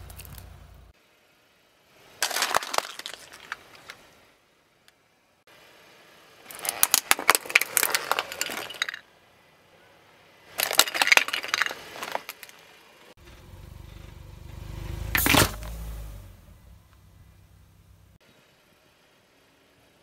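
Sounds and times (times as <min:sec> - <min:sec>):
car rolling rumble: 0:00.0 - 0:01.3, 0:01.9 - 0:18.2
drink can crushed: 0:02.2 - 0:04.0, 0:06.5 - 0:09.0, 0:10.6 - 0:12.6
plastic toy cracking: 0:02.2 - 0:04.0, 0:06.5 - 0:09.0.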